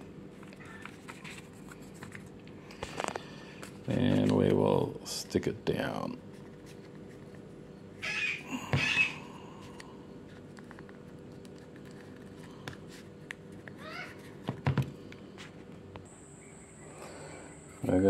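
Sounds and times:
paper crinkling: 0.3 - 4.5, 10.2 - 14.4.

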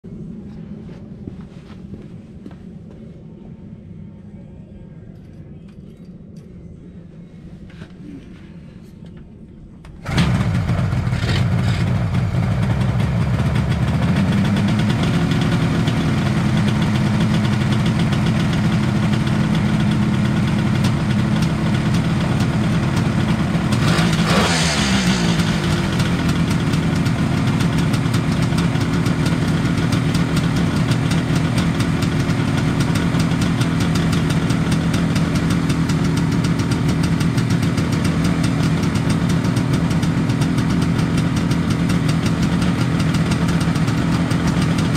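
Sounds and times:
engine revving: 10.1 - 16.9, 21.4 - 28.3
two-stroke motorcycle engine idling: 10.1 - 44.9.

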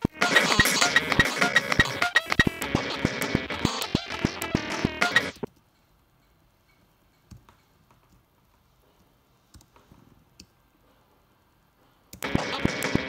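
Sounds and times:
synthesizer music: 0.0 - 5.5, 12.2 - 13.0
faint clicks of keys and buttons: 5.4 - 11.2.

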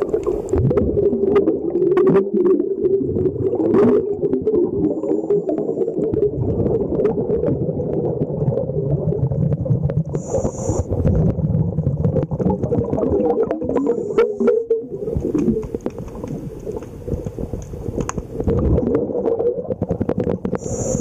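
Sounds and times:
underwater bubbles gurgling: 0.0 - 21.0
small clicks: 15.2 - 18.3.

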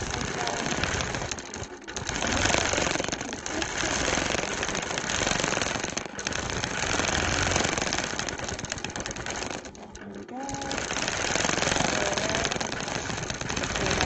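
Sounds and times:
quilting machine stitching: 0.0 - 14.0.

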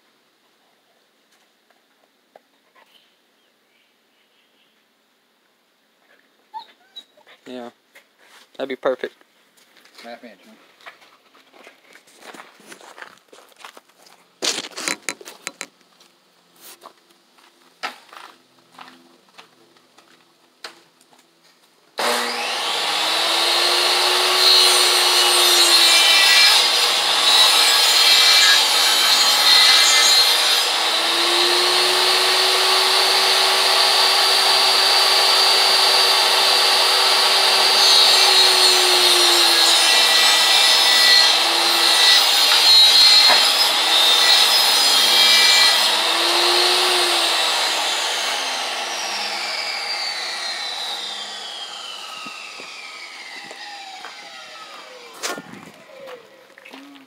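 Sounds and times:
table saw cutting wood: 22.0 - 56.2.

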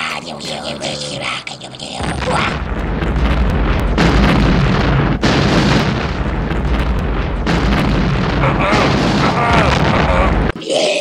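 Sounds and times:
explosion rumbling blast: 2.0 - 10.6.

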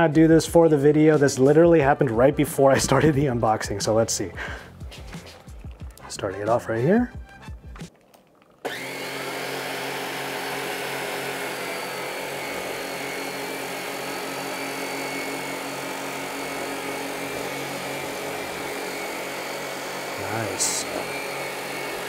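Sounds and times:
stick vacuum whining: 7.8 - 22.0.

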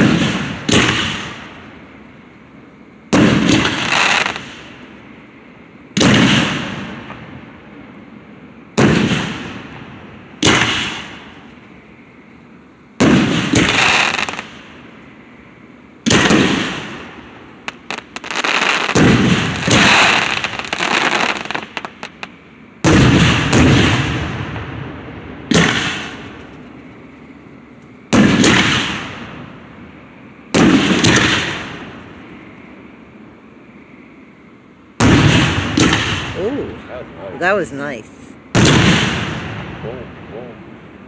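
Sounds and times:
fireworks booms: 0.0 - 1.8, 3.1 - 5.0, 5.9 - 7.6, 8.7 - 11.6, 13.0 - 14.8, 16.0 - 27.2, 28.1 - 29.9, 30.5 - 32.3, 35.0 - 40.9
fireworks crackling: 0.0 - 1.8, 3.1 - 4.9, 10.3 - 11.6, 13.0 - 14.8, 16.1 - 26.9, 28.1 - 29.6, 30.5 - 32.2, 35.0 - 40.6.

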